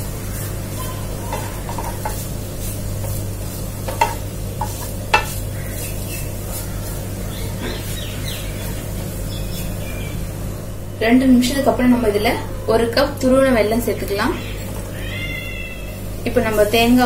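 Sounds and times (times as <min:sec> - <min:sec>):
steady low hum: 0:00.0 - 0:17.0
wooden spatula scraping a pan: 0:00.3 - 0:09.1
spatula knocking against pan: 0:01.3 - 0:02.2, 0:03.8 - 0:05.4.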